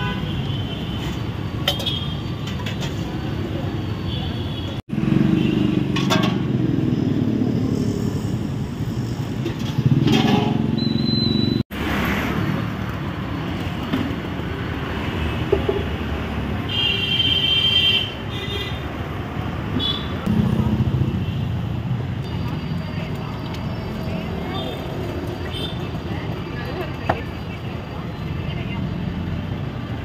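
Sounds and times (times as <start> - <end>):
passing vehicles: 4.7 - 16.8, 18.1 - 30.0
motorbikes passing: 4.8 - 16.7, 19.2 - 30.0.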